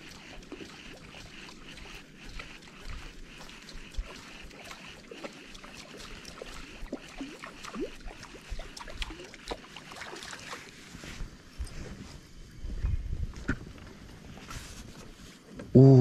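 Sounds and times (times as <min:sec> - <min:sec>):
water lapping at boat hull: 0:00.0 - 0:11.4.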